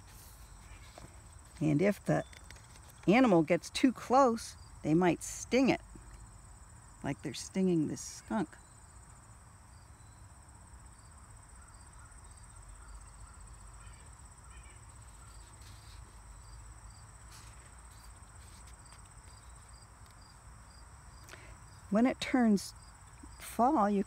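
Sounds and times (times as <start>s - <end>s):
insects chirping: 0.0s - 24.0s
book page turning: 17.2s - 19.6s.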